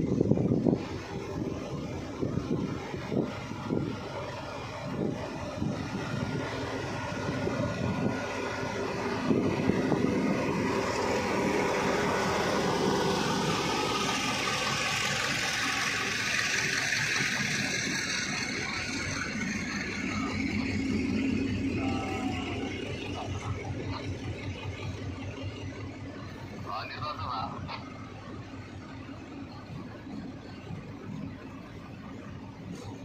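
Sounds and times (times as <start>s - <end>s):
diesel locomotive engine under load: 0.0s - 33.0s
train wheels rolling on rails: 0.0s - 33.0s.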